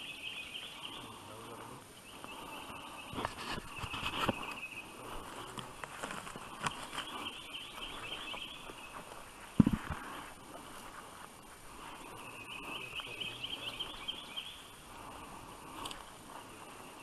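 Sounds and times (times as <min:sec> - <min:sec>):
twigs crackling and snapping: 0:03.1 - 0:11.9, 0:15.6 - 0:16.4
high chirping: 0:06.4 - 0:09.8, 0:11.3 - 0:17.0.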